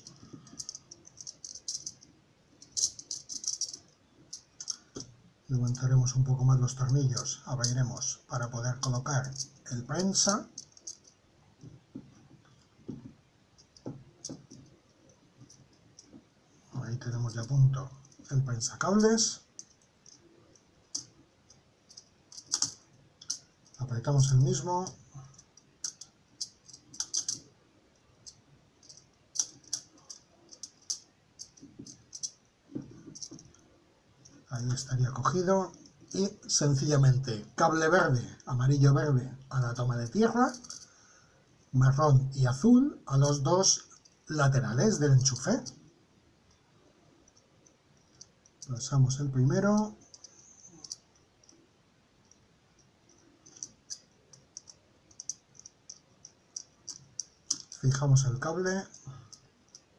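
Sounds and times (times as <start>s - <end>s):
small plastic clicks: 0.0s - 5.8s, 19.5s - 23.8s, 25.3s - 33.6s, 52.2s - 57.9s.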